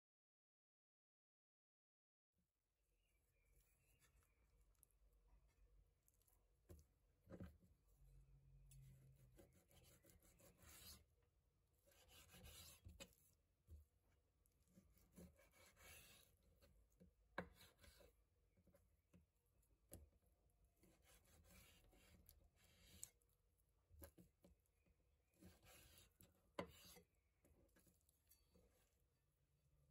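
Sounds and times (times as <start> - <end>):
knife scraping through meat: 8.7 - 11.1, 11.8 - 13.3, 14.6 - 16.7, 20.8 - 23.2, 25.4 - 29.0.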